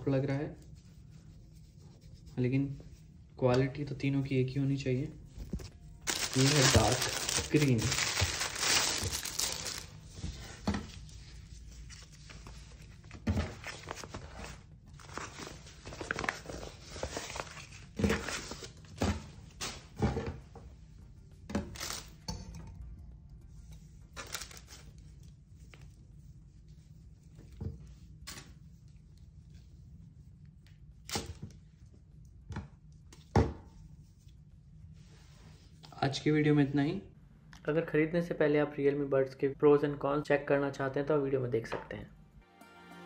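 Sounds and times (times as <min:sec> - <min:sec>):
t-shirt rustling: 0:05.4 - 0:10.4.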